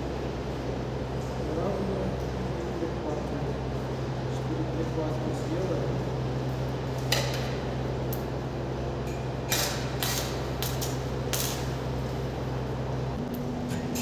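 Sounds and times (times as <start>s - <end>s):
welding arc flaring: 5.2s - 14.0s.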